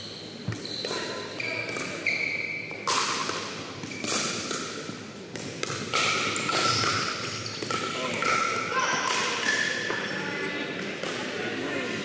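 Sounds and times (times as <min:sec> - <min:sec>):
sneakers squeaking on floor: 0:00.0 - 0:02.9, 0:06.2 - 0:08.6.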